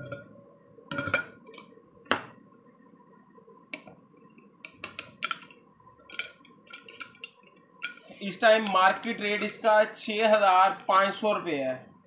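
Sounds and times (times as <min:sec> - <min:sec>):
metal lid knocks and clinks: 0:00.0 - 0:00.3, 0:00.9 - 0:02.4.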